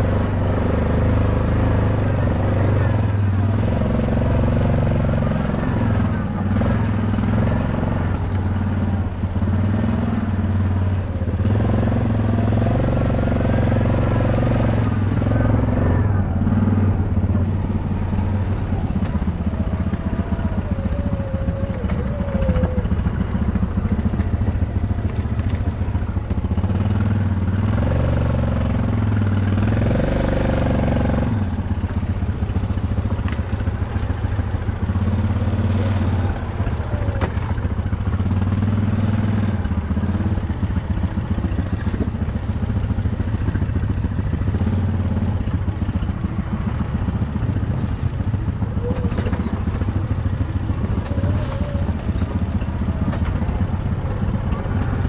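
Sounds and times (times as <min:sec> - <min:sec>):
dirt bike engine revving: 0:00.0 - 0:31.6.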